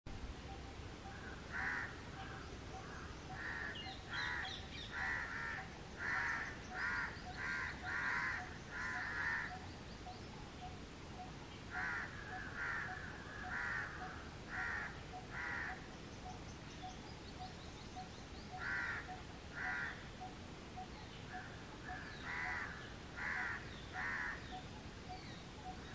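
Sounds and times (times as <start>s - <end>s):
crows cawing: 1.1s - 9.6s, 11.7s - 15.8s, 18.6s - 20.0s, 21.3s - 24.4s.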